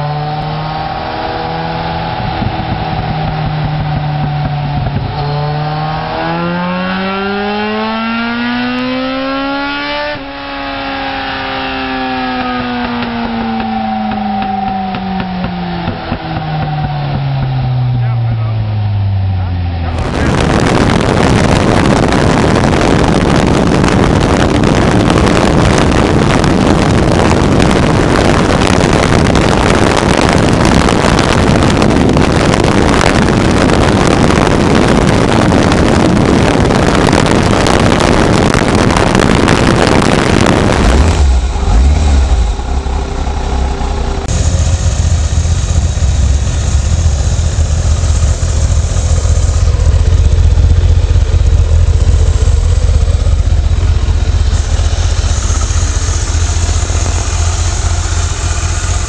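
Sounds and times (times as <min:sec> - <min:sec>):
motorcycle engine and wind rush: 0:00.0 - 0:59.0
motorcycle exhaust deep rumble: 0:00.0 - 0:59.0.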